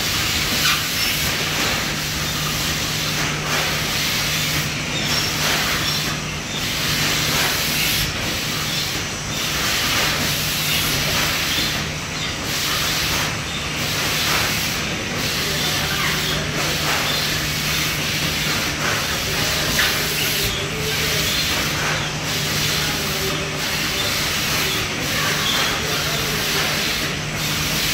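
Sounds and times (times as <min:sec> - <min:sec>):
machinery hiss: 0:00.0 - 0:27.9.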